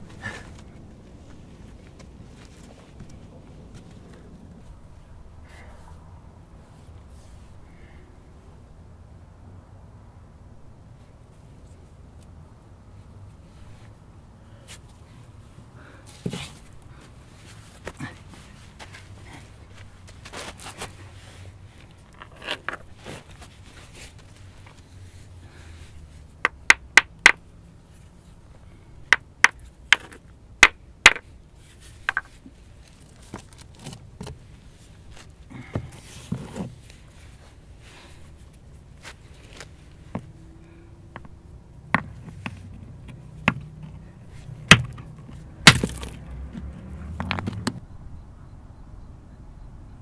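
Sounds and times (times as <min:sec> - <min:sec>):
hammerstone striking stone: 0:30.6 - 0:31.2, 0:44.7 - 0:45.0, 0:45.7 - 0:46.1.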